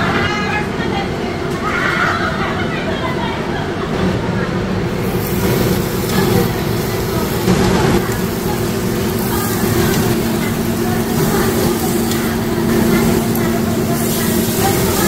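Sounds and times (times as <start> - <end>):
meat sizzling on grill plate: 4.9 - 15.0.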